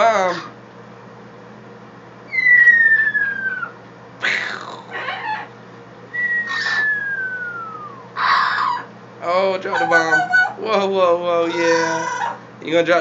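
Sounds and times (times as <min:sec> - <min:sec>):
parrot whistle falling in pitch: 0:06.1 - 0:08.1
parrot rough noisy burst: 0:06.2 - 0:08.9.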